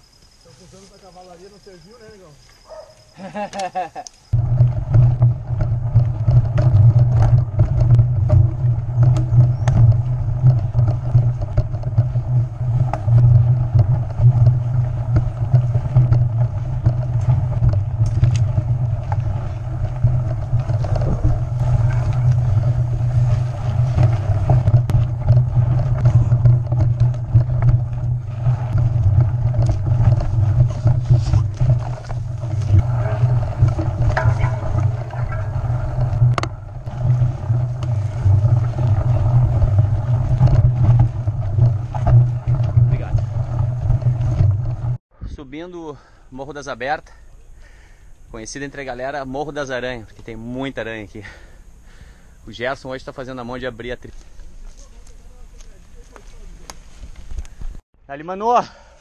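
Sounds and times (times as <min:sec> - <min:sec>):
bike frame rattling and clicking: 0:02.7 - 0:45.0
wind rumbling on microphone: 0:04.3 - 0:45.5.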